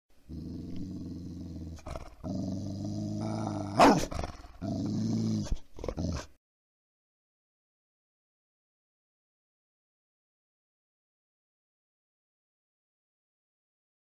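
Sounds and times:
dog growling: 0.3 - 6.4
dog snarling: 0.3 - 6.4.

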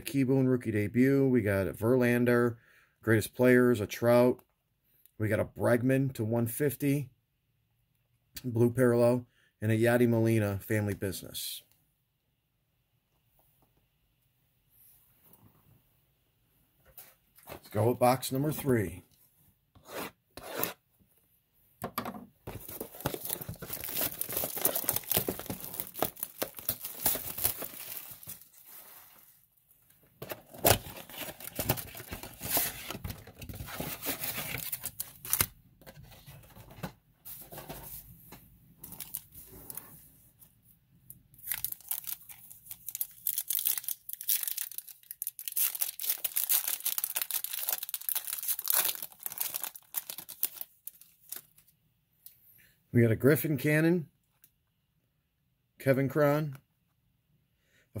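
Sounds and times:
packaging torn and crinkled: 22.6 - 28.6, 30.5 - 32.9, 41.4 - 51.6.

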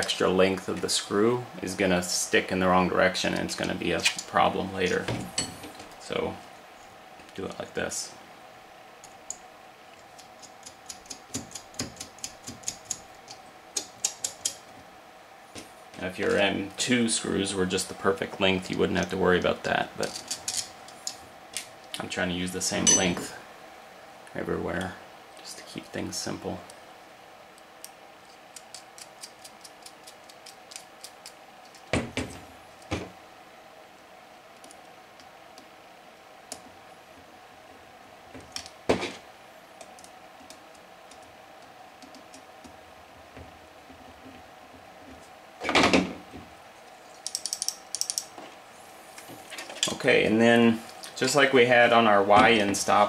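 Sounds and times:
small clicks of screws: 47.2 - 48.3.

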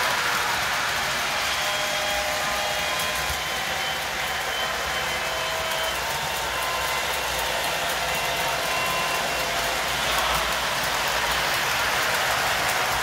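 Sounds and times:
model train motor and wheels whirring: 0.0 - 13.0.

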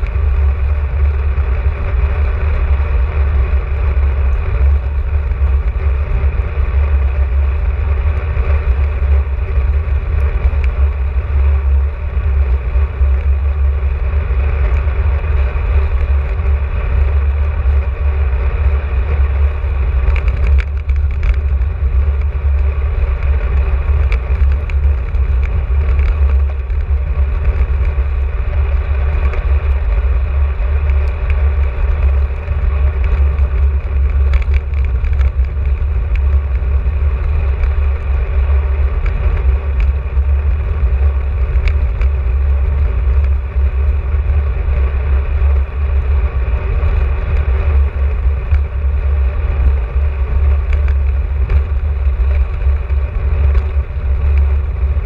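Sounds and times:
bicycle road noise: 0.0 - 55.0
wind buffeting microphone: 0.0 - 55.0
faint ticks: 20.0 - 29.8, 30.8 - 45.7.

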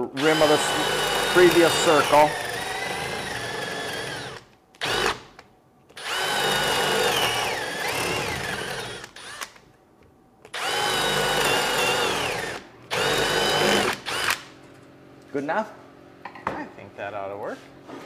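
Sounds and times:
cordless drill boring into wood: 0.0 - 5.2, 6.0 - 9.5, 10.5 - 14.4.

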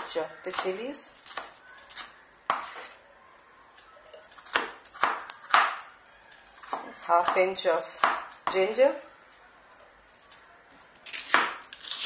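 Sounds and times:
knife chopping on wooden board: 2.5 - 2.9, 4.5 - 5.8, 6.6 - 8.6.

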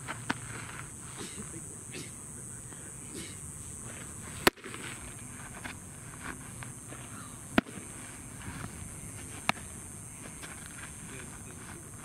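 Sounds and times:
baseball smacking into mitt: 4.4 - 5.0, 7.5 - 7.9, 9.3 - 9.7.

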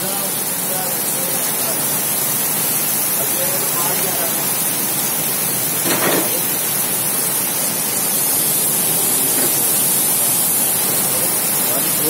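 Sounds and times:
heavy rain on paving and foliage: 0.0 - 12.0.

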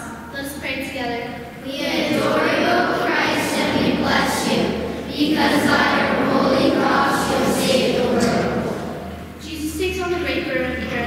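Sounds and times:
group of voices in unison: 1.6 - 9.2.

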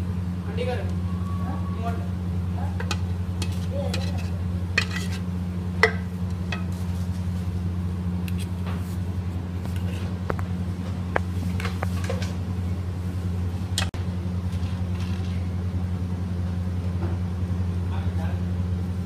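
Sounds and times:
steady low hum: 0.0 - 19.0
steel spoon scraping metal tray: 2.8 - 5.3.

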